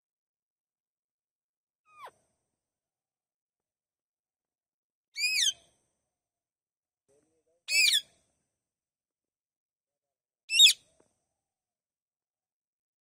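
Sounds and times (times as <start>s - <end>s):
parakeets shrill calls: 5.2s - 5.6s, 7.7s - 8.1s, 10.5s - 10.8s.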